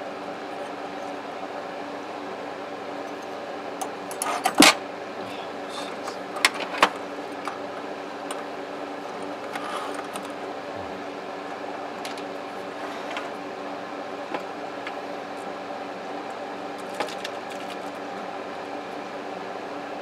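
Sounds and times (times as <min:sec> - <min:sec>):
steady background hum: 0:00.0 - 0:20.0.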